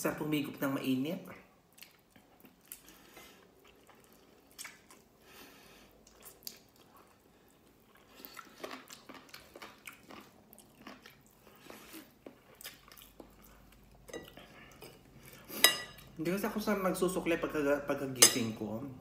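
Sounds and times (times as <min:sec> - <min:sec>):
person chewing food: 0:01.6 - 0:16.1.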